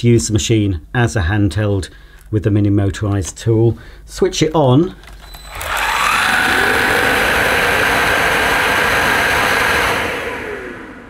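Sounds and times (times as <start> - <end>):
vacuum motor whine: 5.3 - 11.0
rush of suction air: 5.6 - 11.0.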